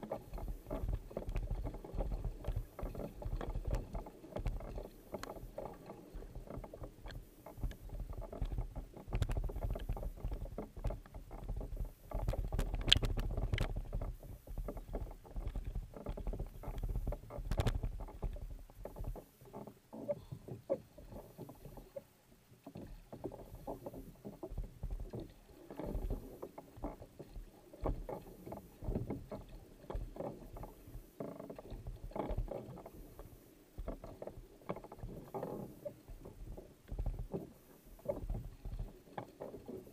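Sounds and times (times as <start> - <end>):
paddle strokes splashing: 0.0 - 39.9
water washing along hull: 0.0 - 39.9.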